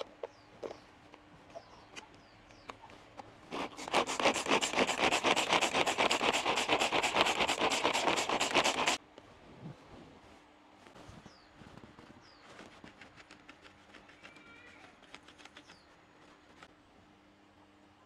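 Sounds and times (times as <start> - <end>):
rapid scraping strokes: 3.5 - 9.0.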